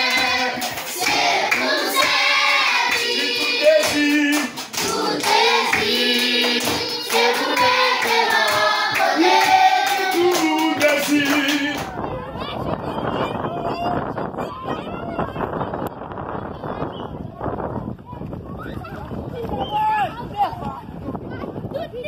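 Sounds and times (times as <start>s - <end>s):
children singing in unison: 0.0s - 11.7s
hand claps: 0.0s - 11.9s.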